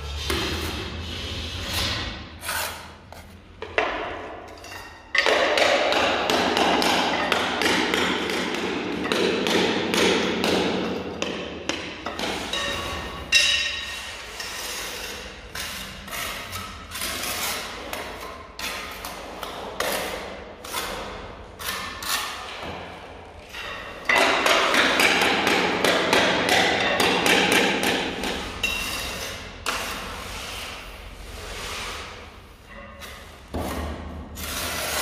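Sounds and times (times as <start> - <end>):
trowel scraping mortar onto tile: 0.0 - 5.0, 12.1 - 22.7, 27.8 - 35.0.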